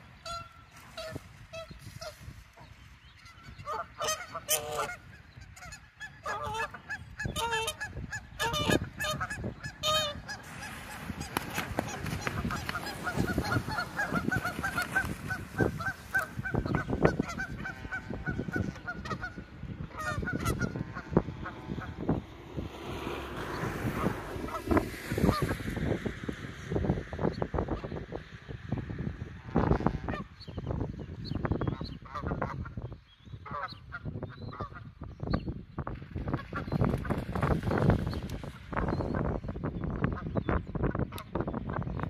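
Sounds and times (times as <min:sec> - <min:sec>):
geese honking: 0:00.2 - 0:22.2, 0:23.6 - 0:25.6, 0:29.3 - 0:30.4, 0:33.4 - 0:34.9.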